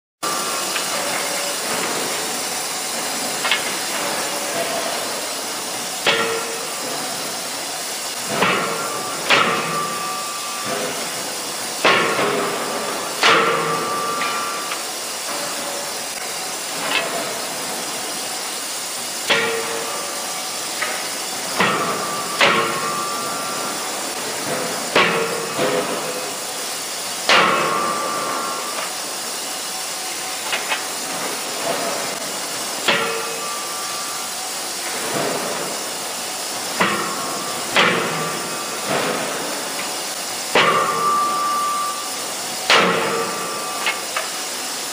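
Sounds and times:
steady hiss: 0.2s - 44.9s
forging hammer blows: 6.0s - 7.5s, 40.5s - 44.4s
metallic ring: 8.6s - 11.3s, 40.6s - 44.2s.

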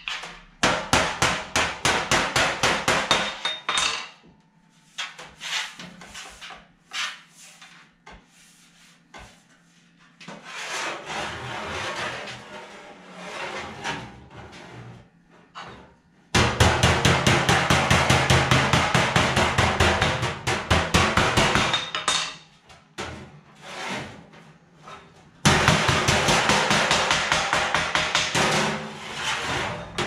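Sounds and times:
rapid hammer blows on sheet steel: 0.0s - 3.4s, 16.4s - 22.0s, 25.4s - 29.0s.

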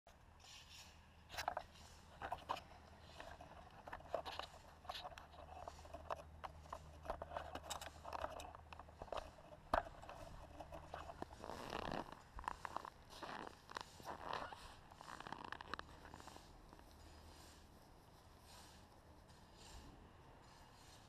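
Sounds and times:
crunching steps in snow: 10.1s - 17.7s.

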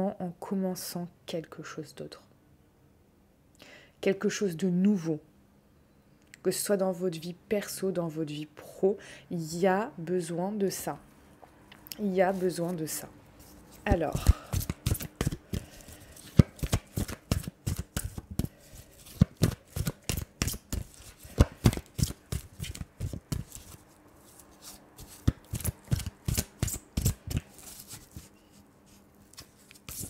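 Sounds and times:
cards being shuffled: 12.3s - 30.0s.

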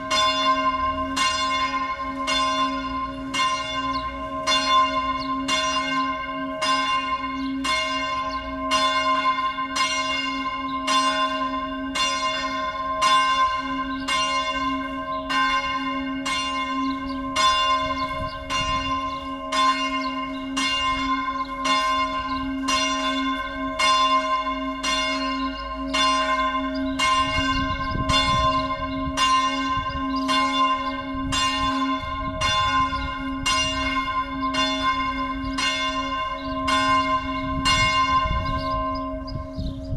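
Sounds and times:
church bells pealing: 0.0s - 39.9s
low hum of bells: 0.0s - 39.9s.

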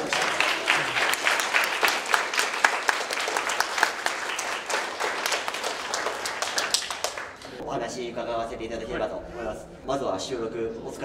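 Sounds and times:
small group clapping: 0.0s - 7.6s.

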